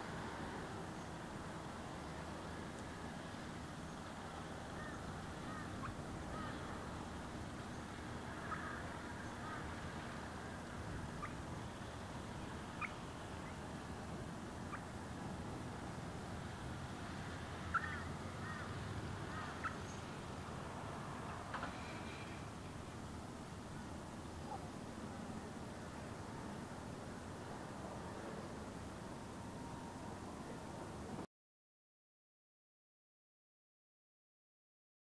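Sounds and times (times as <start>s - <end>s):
ospreys chirping: 11.1s - 11.6s, 14.7s - 15.0s, 17.7s - 18.7s.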